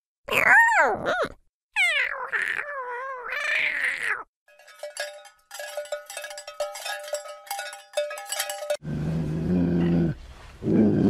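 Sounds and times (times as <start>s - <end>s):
kitten meowing: 1.8s - 4.2s
bright ringing notes: 4.5s - 8.8s.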